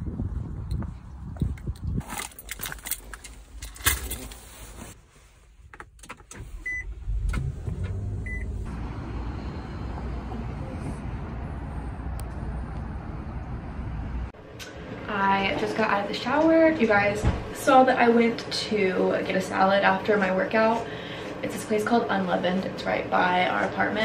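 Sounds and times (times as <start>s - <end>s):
car engine rumble: 0.1s - 14.4s.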